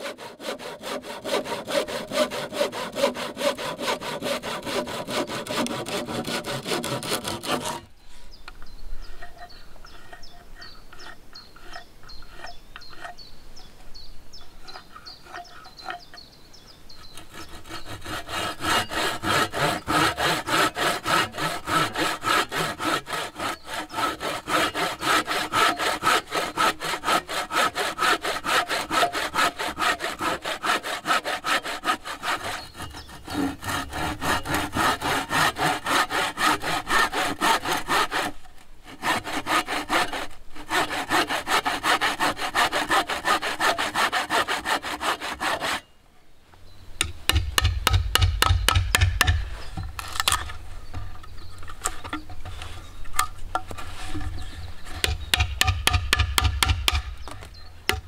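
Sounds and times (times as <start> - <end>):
hand saw cutting wood: 0.0 - 7.9, 17.0 - 45.9, 47.3 - 50.6, 51.8 - 58.0.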